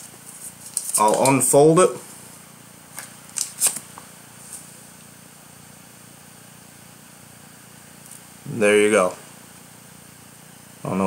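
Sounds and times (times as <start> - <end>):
paper rustling: 0.0 - 1.6, 2.9 - 4.7
steady low hiss: 0.0 - 11.0.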